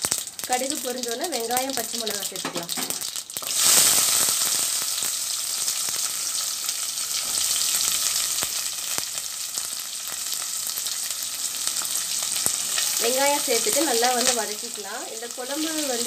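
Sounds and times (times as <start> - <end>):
shallots sizzling in hot oil: 0.0 - 16.0
sharp ticks in frying oil: 0.0 - 16.0.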